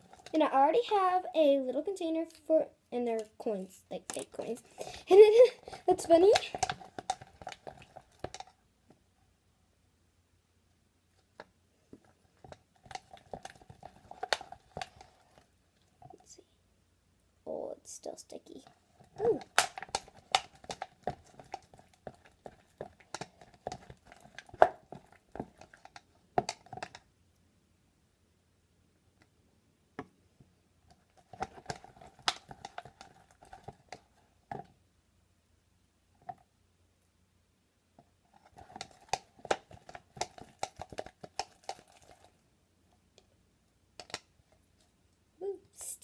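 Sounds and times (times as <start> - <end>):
stirrer clicking in plastic cup: 5.7 - 8.6, 12.4 - 15.4, 19.0 - 27.1, 31.2 - 34.7, 38.4 - 42.3.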